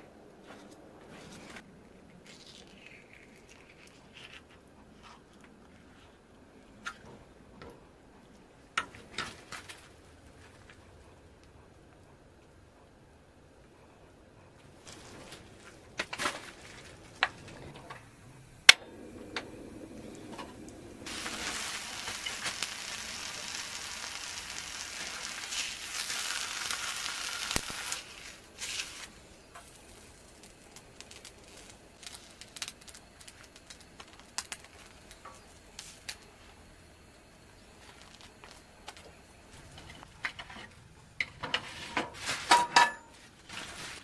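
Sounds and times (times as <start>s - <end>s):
meat sizzling on a griddle: 21.1s - 33.4s.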